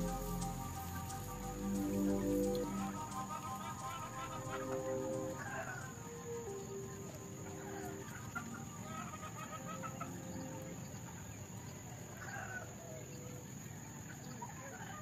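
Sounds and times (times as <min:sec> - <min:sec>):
chickens clucking: 0:00.0 - 0:11.3.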